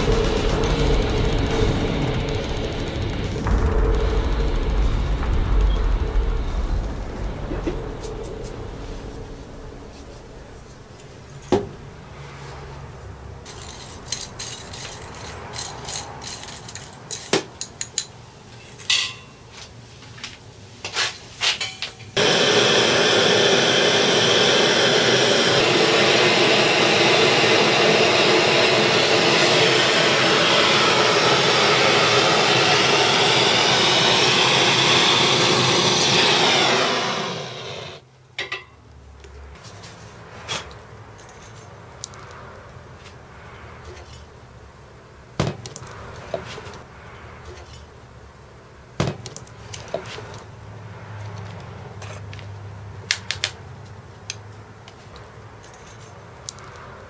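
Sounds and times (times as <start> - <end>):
gas torch hissing: 0.0 - 6.1, 22.2 - 38.0.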